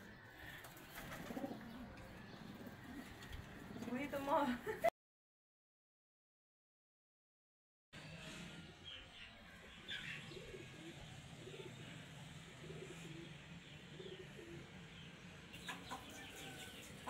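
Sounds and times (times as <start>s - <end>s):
dove cooing: 0.0s - 4.0s, 10.0s - 14.8s.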